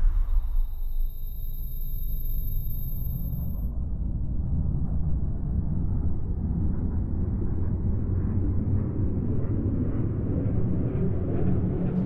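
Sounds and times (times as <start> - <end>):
deep rumble: 0.0 - 6.0.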